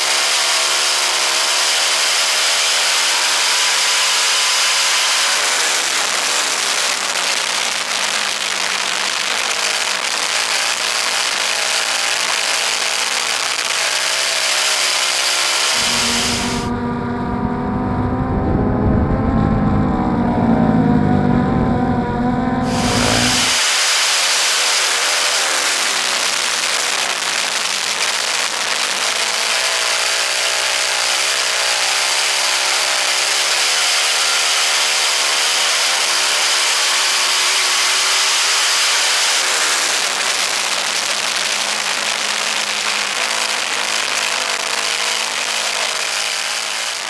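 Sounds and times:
motorcycle engine at speed: 0:00.0 - 0:47.0
deep loud rumble: 0:15.8 - 0:23.6.

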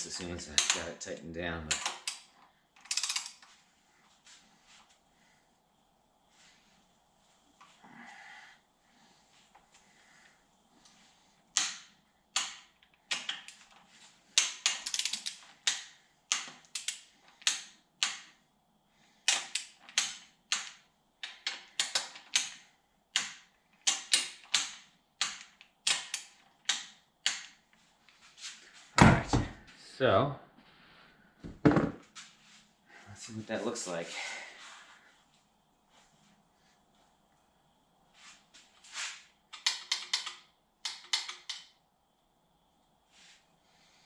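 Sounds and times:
socket ratchet clicking: 0:00.6 - 0:00.9, 0:01.7 - 0:03.4, 0:11.5 - 0:13.7, 0:14.4 - 0:18.3, 0:19.3 - 0:27.6, 0:39.6 - 0:41.7.

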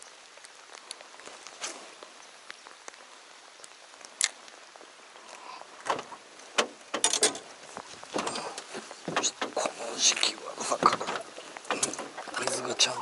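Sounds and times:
light rain pattering: 0:00.0 - 0:13.0
fishing gear clattering and rattling: 0:06.6 - 0:12.8.

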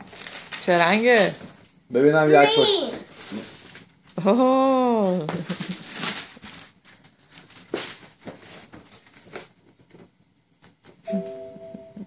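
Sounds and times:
wrapping paper and box rustling: 0:00.0 - 0:01.8, 0:02.7 - 0:03.9, 0:05.0 - 0:10.1.

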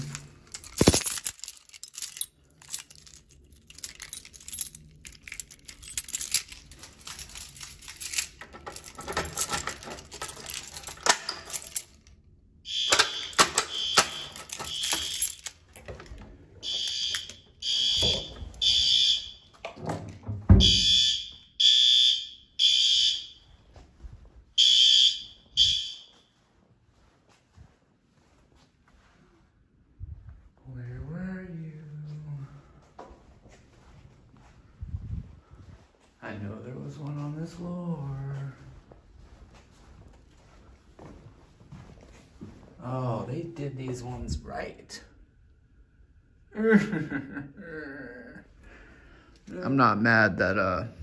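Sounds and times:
handling clicks and rattling: 0:00.0 - 0:12.2, 0:12.9 - 0:17.4
fire alarm horn: 0:12.6 - 0:15.4, 0:16.6 - 0:19.5, 0:20.6 - 0:23.6, 0:24.6 - 0:26.4.

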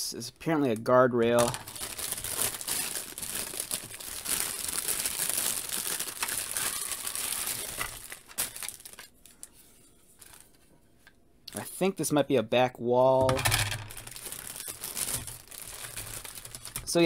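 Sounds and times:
plastic film crinkling: 0:01.4 - 0:10.7, 0:13.7 - 0:17.0.

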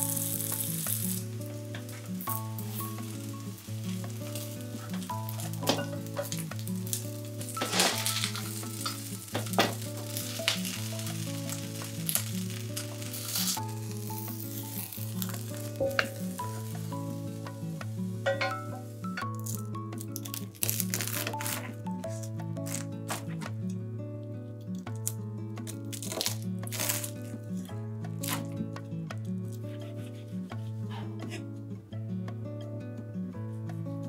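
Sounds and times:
batter sizzling in oil: 0:00.0 - 0:19.5
soft background music: 0:00.0 - 0:34.0.

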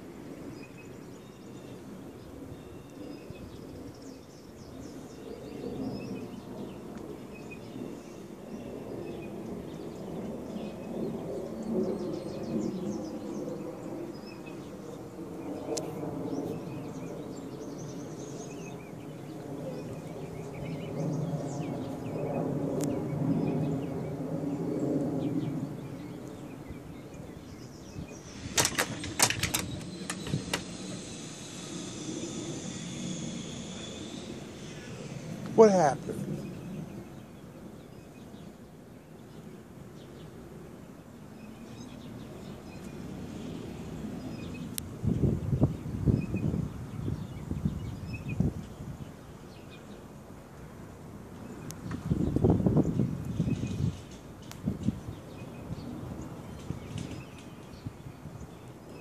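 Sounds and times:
low rumble: 0:28.0 - 0:37.2.

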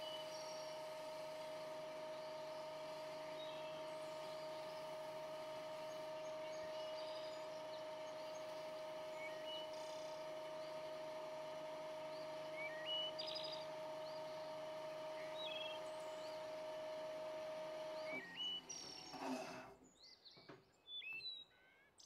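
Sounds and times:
birds chirping: 0:12.1 - 0:16.5.

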